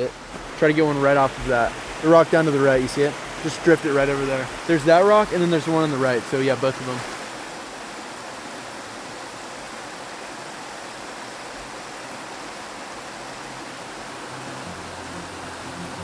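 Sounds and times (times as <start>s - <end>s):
stream rushing over rocks: 0.0s - 16.0s
low background music: 13.6s - 16.0s.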